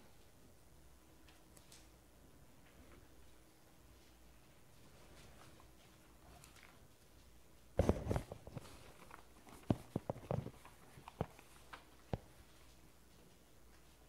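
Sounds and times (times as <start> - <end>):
paper rustling: 4.8 - 13.9.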